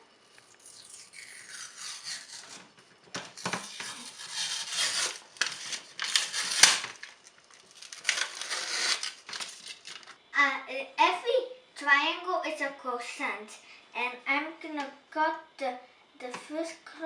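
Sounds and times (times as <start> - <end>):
paper wrapper crinkling and tearing: 3.4 - 10.2.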